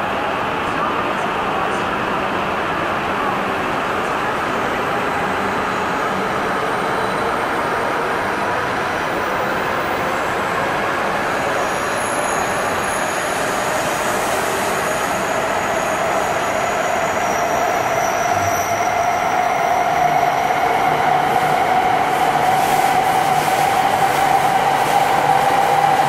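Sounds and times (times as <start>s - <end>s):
train rushing past: 0.0s - 26.0s
faint high ringing tone: 15.8s - 20.5s.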